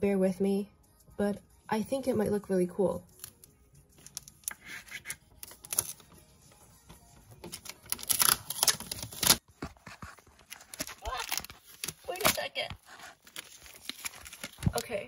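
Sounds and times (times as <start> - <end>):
packing tape ripping off roll: 4.0 - 6.1, 7.4 - 14.9.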